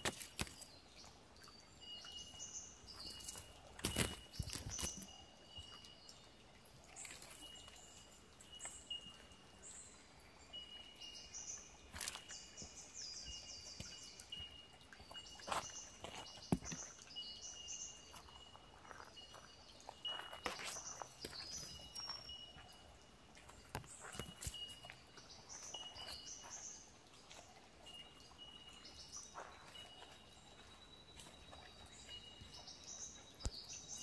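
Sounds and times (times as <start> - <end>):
birds chirping and trilling: 0.0 - 34.0.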